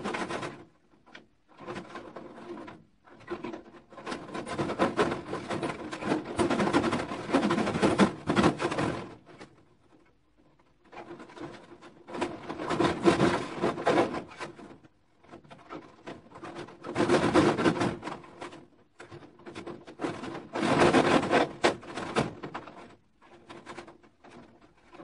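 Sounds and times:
wire mesh scraping on wood: 10.8s - 25.0s.

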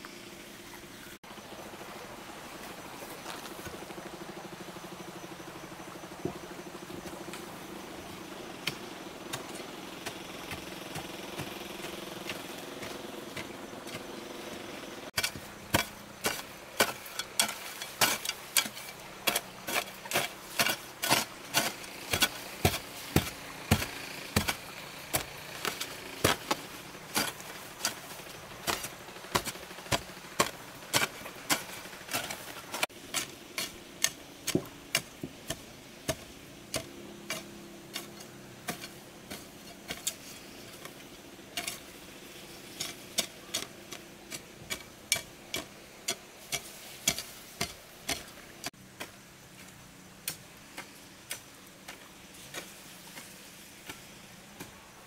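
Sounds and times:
hoe chopping into stony soil: 15.2s - 41.9s, 42.8s - 49.2s.

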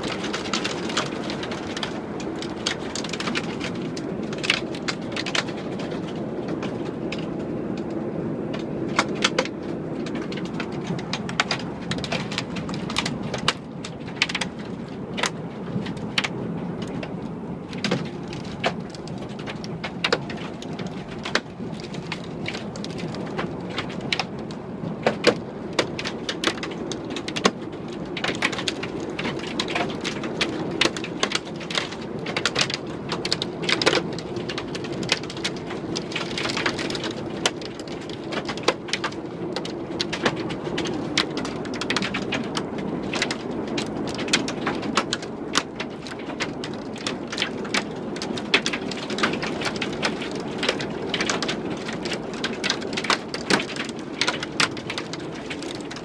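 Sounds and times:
heavy rain: 0.0s - 56.0s
hailstones striking window glass: 17.7s - 24.3s, 25.0s - 56.0s.

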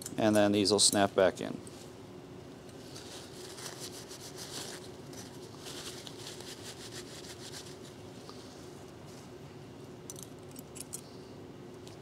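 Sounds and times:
faint steady hum: 0.0s - 12.0s
paper towel rubbing on metal: 2.9s - 8.0s.

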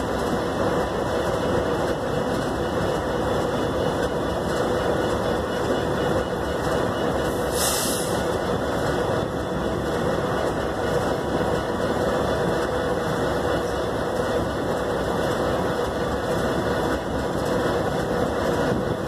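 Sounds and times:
diesel locomotive idling: 0.0s - 19.0s
short air hiss: 7.5s - 8.2s.

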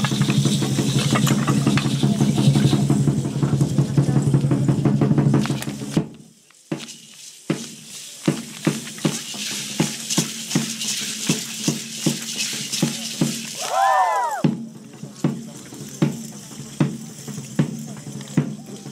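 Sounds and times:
drum beating: 0.0s - 6.1s, 7.5s - 18.9s
hand rattles shaking: 7.9s - 13.8s.

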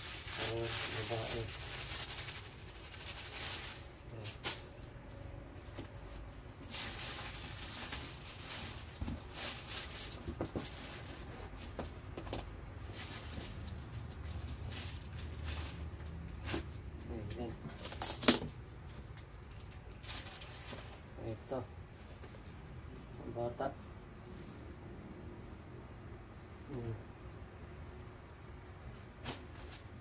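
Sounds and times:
plastic and cardboard rustling: 0.0s - 22.7s, 28.8s - 30.0s.

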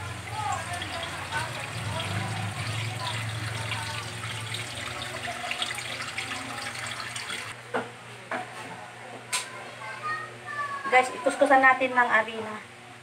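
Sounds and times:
water running from tap: 0.0s - 7.6s.

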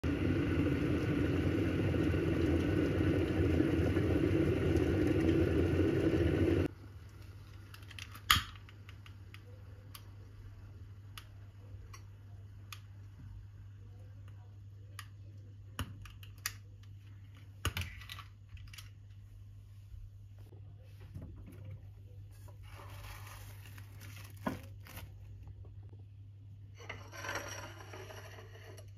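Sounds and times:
electric kettle boiling: 0.0s - 7.7s.

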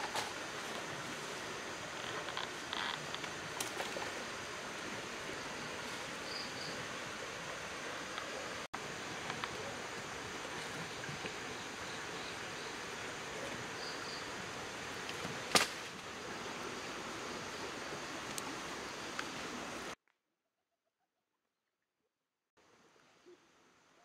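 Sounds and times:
outdoor background hiss: 0.0s - 20.0s, 22.6s - 24.0s.

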